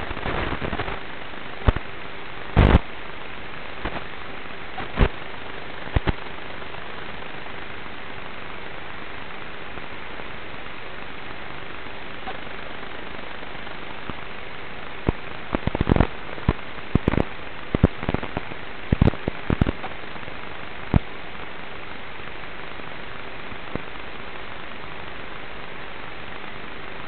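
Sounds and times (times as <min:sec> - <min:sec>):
sharp crackles and clicks: 0:00.0 - 0:03.0, 0:03.6 - 0:08.3, 0:09.2 - 0:21.5
faint hum: 0:00.0 - 0:27.0
static hiss: 0:00.0 - 0:27.0.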